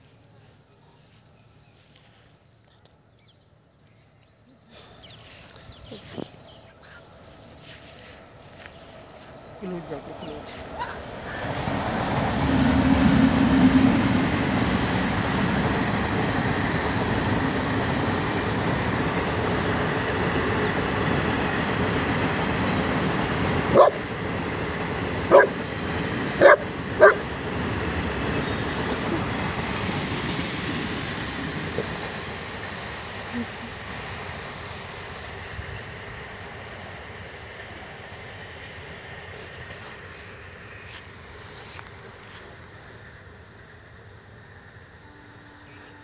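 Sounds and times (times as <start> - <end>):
dog barking: 23.7 - 24.0, 25.3 - 25.6, 26.4 - 27.3.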